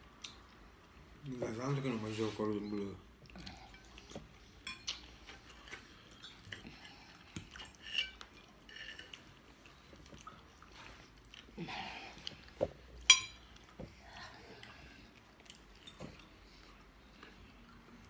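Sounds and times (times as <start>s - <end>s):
person chewing: 0.0s - 1.1s, 3.1s - 18.0s
forks scraping on a plate: 7.5s - 9.2s
metal clinking on a plate: 13.1s - 13.4s.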